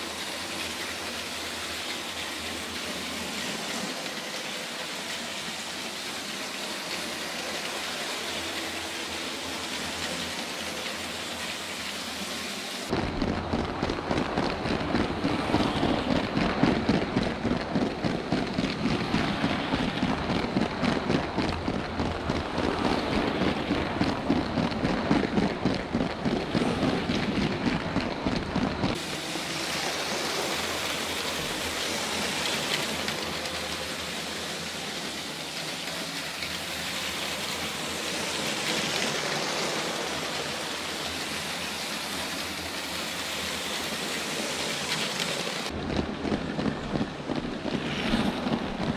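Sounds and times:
toy train wheels rattling on track: 0:00.0 - 0:12.3, 0:28.8 - 0:45.8
steady hiss: 0:00.0 - 0:13.8, 0:28.9 - 0:45.8.

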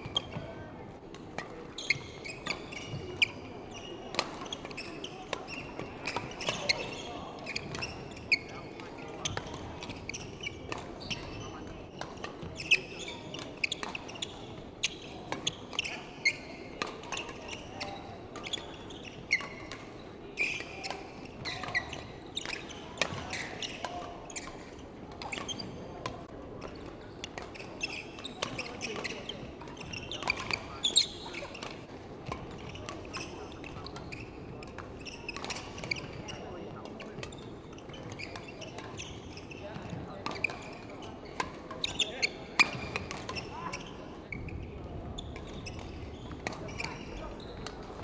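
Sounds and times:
shoes squeaking on wooden floor: 0:01.5 - 0:11.6, 0:20.4 - 0:24.6, 0:32.3 - 0:48.0
rackets striking shuttlecock: 0:28.4 - 0:37.4, 0:39.8 - 0:40.6, 0:42.6 - 0:43.8.

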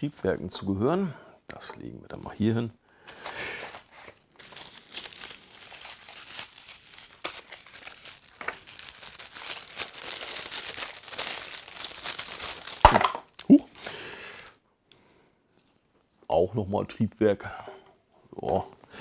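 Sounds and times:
paper wrapping rustling: 0:03.2 - 0:14.6.

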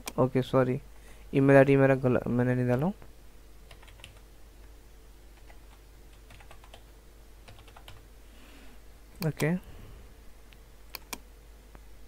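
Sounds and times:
computer keyboard typing: 0:03.7 - 0:04.2, 0:05.4 - 0:08.0.

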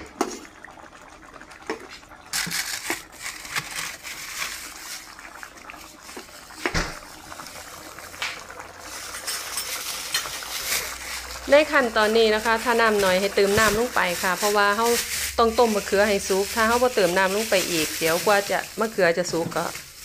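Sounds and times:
curry simmering hiss: 0:04.6 - 0:20.0.

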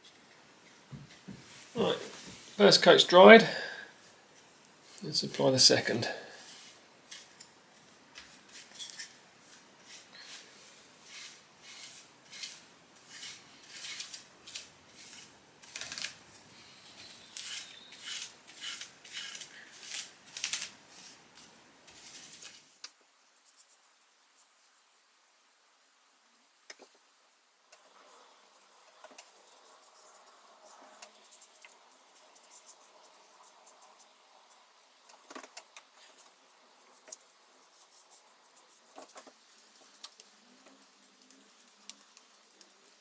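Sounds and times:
paintbrush swishing: 0:06.3 - 0:08.8, 0:09.4 - 0:15.3, 0:28.5 - 0:34.9, 0:36.0 - 0:43.0.

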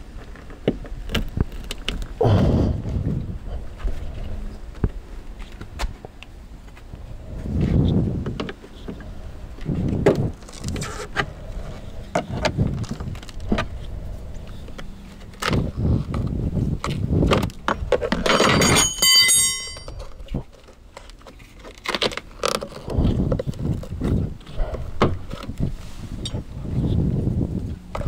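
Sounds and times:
brief metallic ringing: 0:18.4 - 0:20.0.

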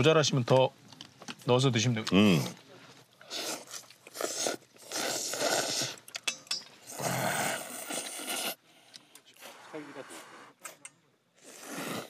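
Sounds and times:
person slurping noodles: 0:03.2 - 0:06.1, 0:06.9 - 0:08.6, 0:11.3 - 0:12.0.

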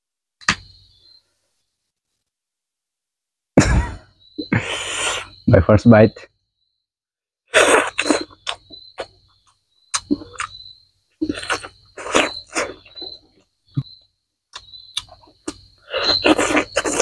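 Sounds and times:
high insect trill: 0:00.4 - 0:01.7, 0:03.6 - 0:17.0
wet chewing and lip smacks: 0:07.8 - 0:10.6, 0:14.5 - 0:15.6.

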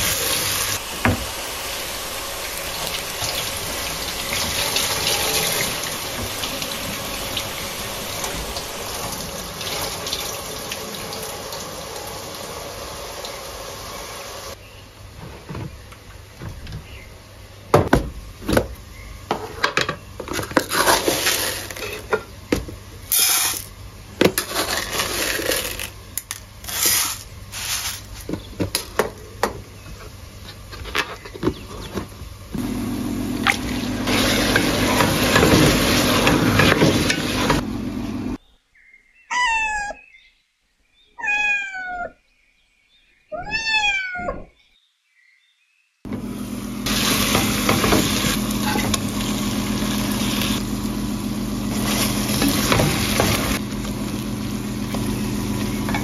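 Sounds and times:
cat meowing: 0:39.3 - 0:40.1, 0:41.2 - 0:42.2, 0:43.3 - 0:44.5.

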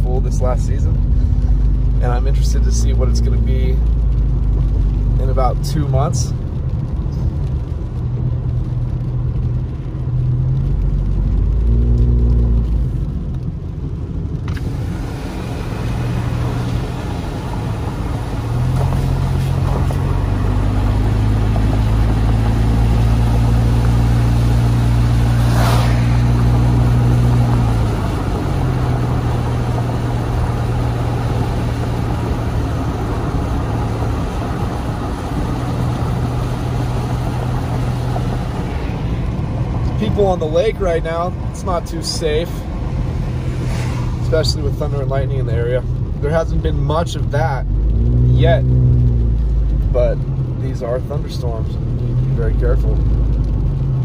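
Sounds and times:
car engine and road hum: 0:00.0 - 0:54.0
tyre hiss on wet road: 0:14.4 - 0:41.1, 0:42.2 - 0:45.2.

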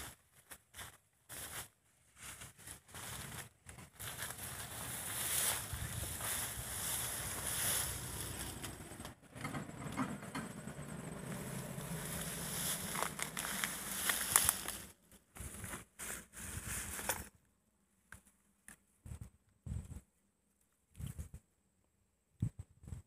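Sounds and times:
low rumble: 0:04.0 - 0:15.1
plastic crinkling and rustling: 0:11.7 - 0:14.9.

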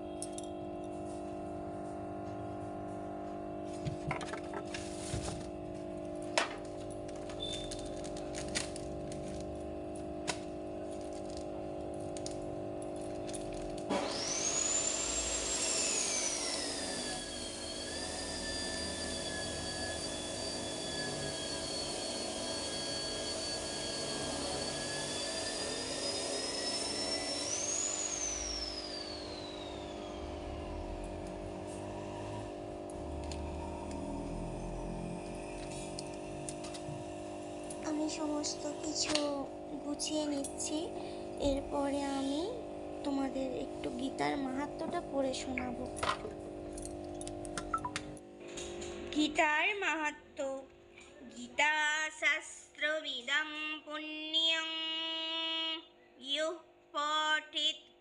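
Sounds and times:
small electric motor whine: 0:00.0 - 0:39.1.

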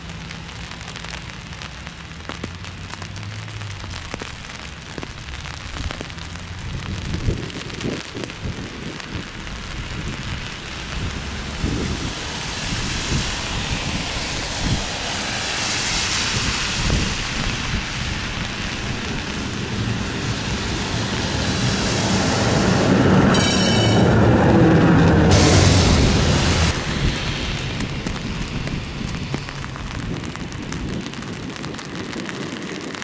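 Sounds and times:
tram rumbling along track: 0:10.1 - 0:30.6
high squeal of tram: 0:22.0 - 0:26.7.

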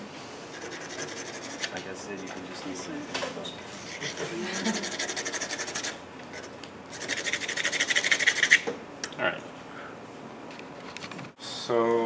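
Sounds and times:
drawing stick scratching paper: 0:00.5 - 0:02.7, 0:03.8 - 0:08.6.

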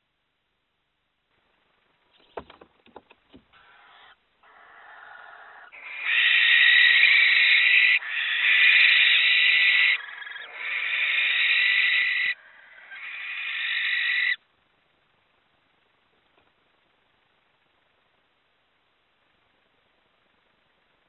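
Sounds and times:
owls hissing screeches: 0:03.5 - 0:14.4.

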